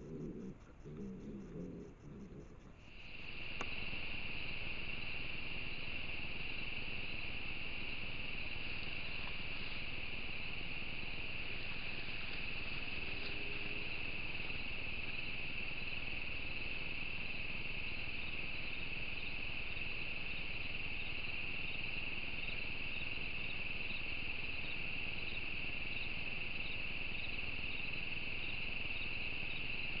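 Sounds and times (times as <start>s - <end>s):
faint regular chirps: 0.0s - 7.3s
crickets trilling: 0.0s - 30.0s.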